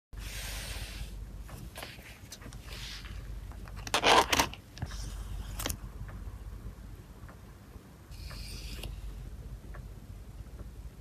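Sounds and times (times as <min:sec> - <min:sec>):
plastic crinkling and scraping: 0:01.7 - 0:05.8.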